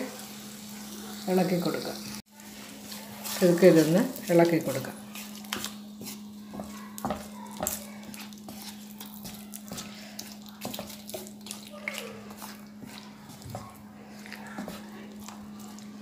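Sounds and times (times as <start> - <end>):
wooden spatula scraping pan: 2.7 - 11.6, 12.2 - 16.0.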